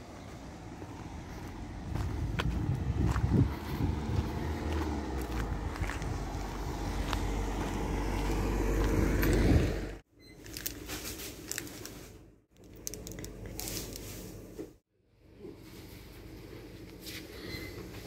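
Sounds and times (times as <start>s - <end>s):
car driving past: 0.0s - 10.0s
wind rumble on microphone: 1.3s - 10.0s
packaging handling: 10.4s - 12.0s.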